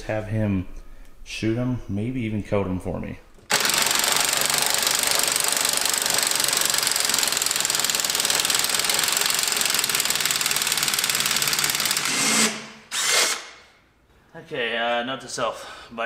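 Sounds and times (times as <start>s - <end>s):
impact wrench hammering: 3.5s - 13.6s.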